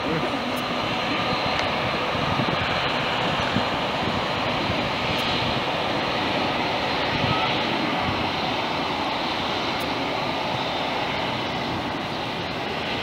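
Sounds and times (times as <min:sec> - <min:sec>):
jet engines roaring: 0:00.0 - 0:13.0.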